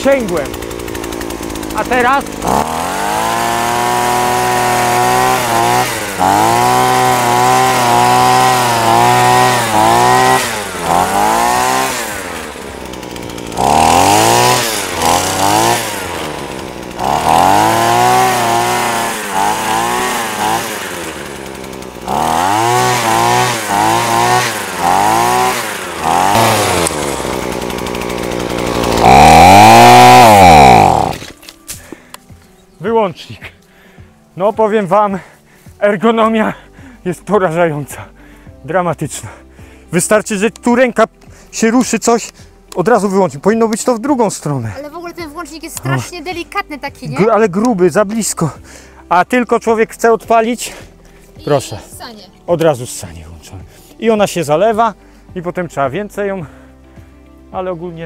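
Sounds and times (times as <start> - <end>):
hedge trimmer engine revving: 0.0 - 32.2.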